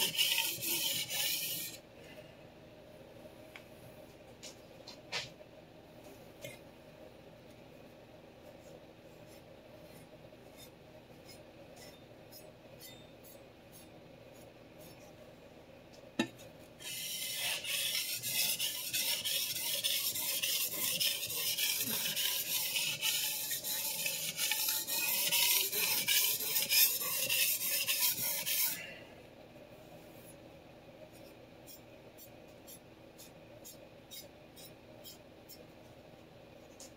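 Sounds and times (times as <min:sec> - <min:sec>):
knife scraping on sharpening stone: 0:00.0 - 0:01.8, 0:10.6 - 0:13.8, 0:16.2 - 0:28.8.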